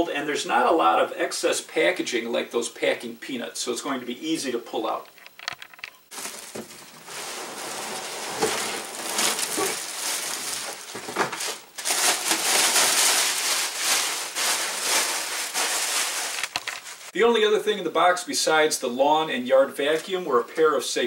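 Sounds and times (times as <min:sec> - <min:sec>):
plastic bag crinkling: 0:06.1 - 0:17.2.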